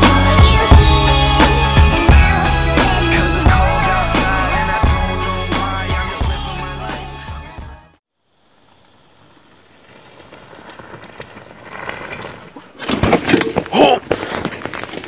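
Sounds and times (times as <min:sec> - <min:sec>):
bike tyres rolling on dirt trail: 0:08.1 - 0:15.0
bike crunching and rattling: 0:08.6 - 0:15.0.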